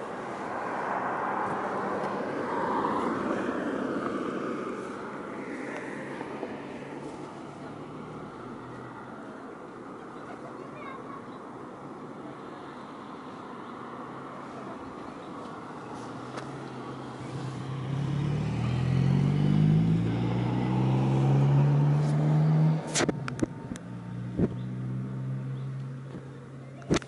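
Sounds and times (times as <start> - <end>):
engine humming: 14.1 - 27.0.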